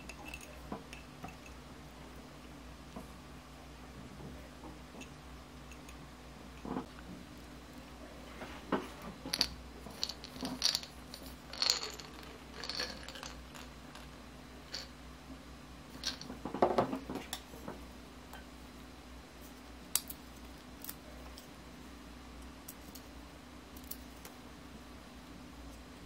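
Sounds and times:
nuts rattling in a glass jar: 9.3s - 14.9s, 15.9s - 16.3s.

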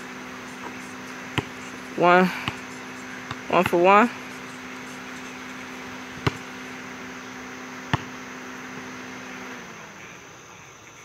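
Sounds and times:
steady low hum: 0.0s - 11.0s
basketball bouncing on hard court: 0.5s - 8.9s.

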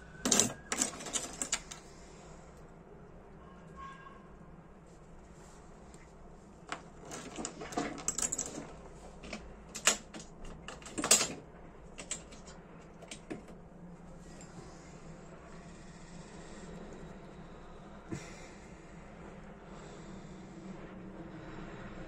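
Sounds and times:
clicks of small metal parts: 0.2s - 1.8s.

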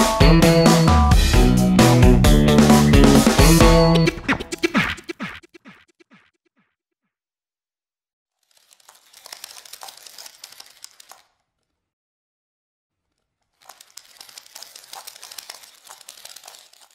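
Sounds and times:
crackly rustling: 8.4s - 11.8s, 13.0s - 16.9s.

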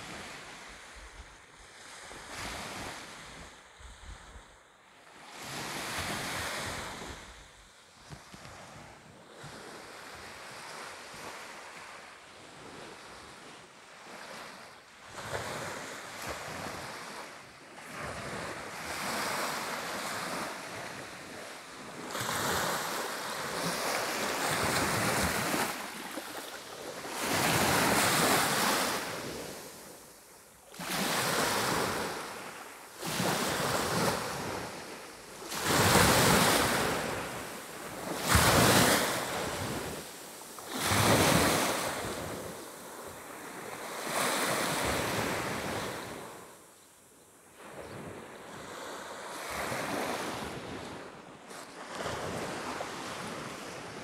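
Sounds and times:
waves breaking on shore: 14.0s - 46.6s.

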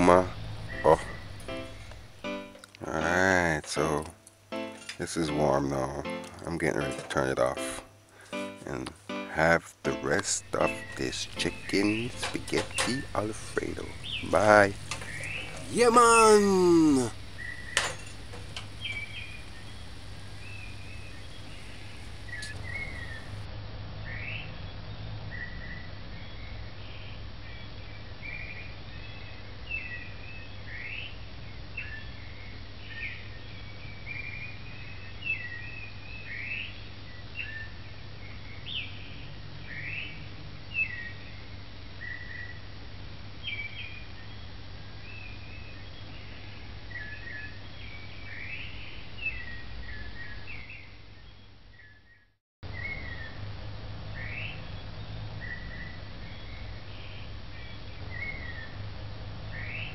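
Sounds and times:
birds chirping: 0.0s - 6.8s, 7.4s - 23.5s
steady low hum: 16.6s - 23.5s.

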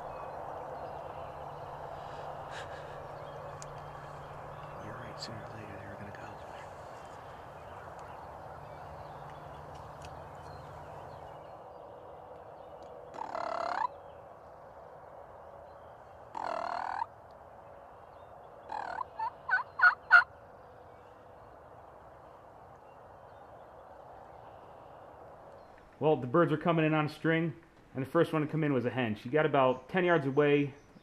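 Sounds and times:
turkey gobbling: 13.2s - 13.9s, 16.4s - 17.1s, 18.7s - 20.3s
turkey yelps: 13.2s - 13.9s, 16.4s - 17.1s, 18.7s - 20.3s.

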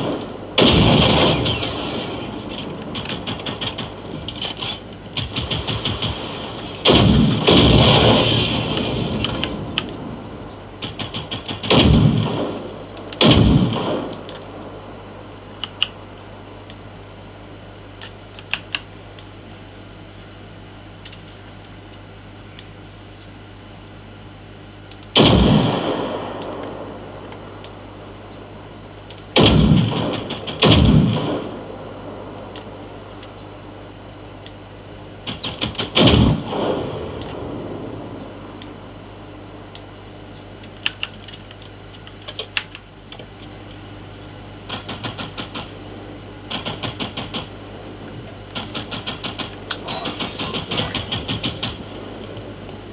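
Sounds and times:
heavy rifle shots with echo: 0.0s - 4.2s, 5.2s - 10.2s, 10.8s - 14.6s, 25.1s - 27.6s, 29.3s - 32.9s, 35.2s - 38.6s
low hum: 0.0s - 52.9s
automatic gunfire bursts: 5.2s - 9.4s, 48.6s - 51.9s.

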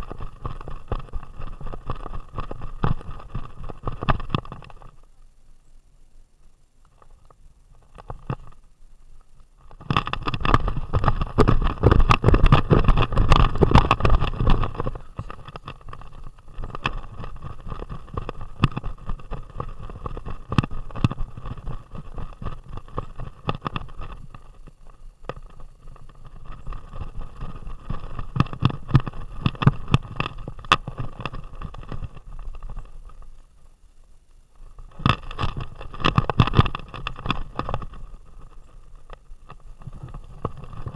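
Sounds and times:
camera rattling in its mount: 9.7s - 24.5s.

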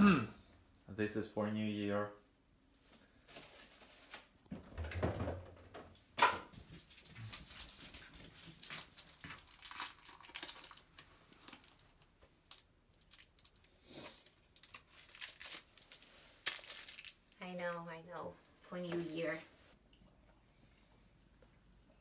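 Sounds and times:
plastic packaging crinkling: 6.7s - 17.5s.

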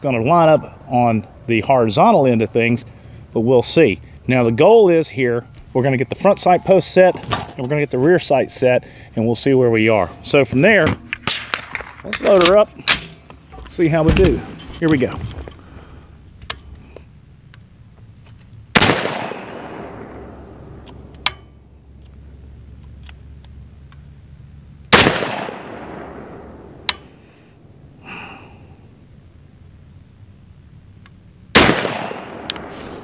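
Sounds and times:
rifle shots with echo: 18.8s - 20.8s, 24.9s - 27.2s, 31.5s - 32.7s.

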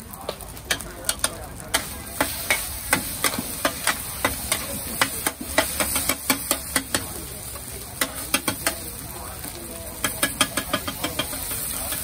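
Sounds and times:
food sizzling: 0.0s - 12.0s
metal spatulas clanging on a wok: 0.7s - 7.2s, 8.0s - 8.9s, 10.0s - 12.0s.

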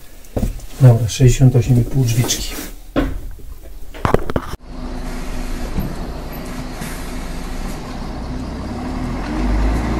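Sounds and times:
vehicle engine running: 4.6s - 9.9s.

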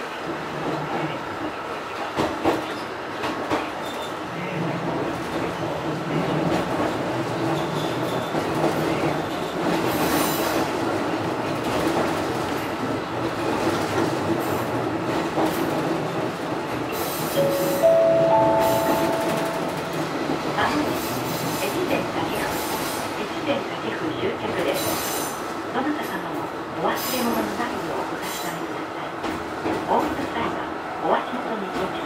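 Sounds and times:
train wheels rumbling on rails: 0.0s - 17.4s.

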